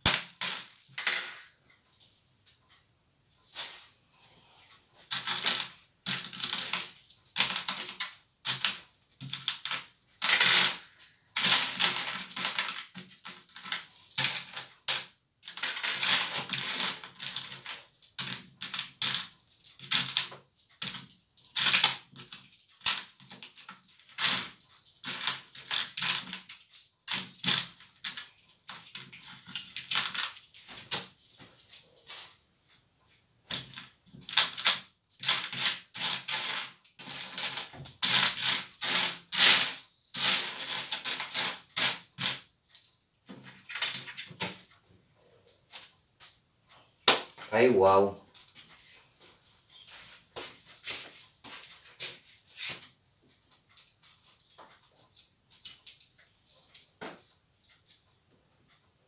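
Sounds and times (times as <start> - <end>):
coins clinking and rattling: 0.0 - 1.6, 5.0 - 32.4, 33.5 - 44.6, 45.7 - 46.4.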